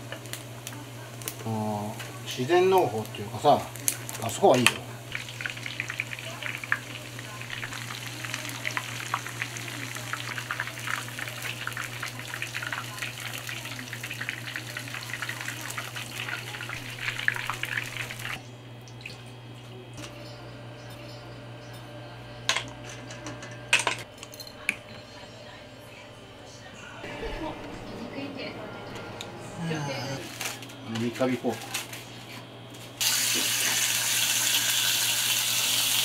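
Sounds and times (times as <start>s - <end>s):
oil crackling and sizzling: 0.0s - 19.1s, 33.0s - 36.0s.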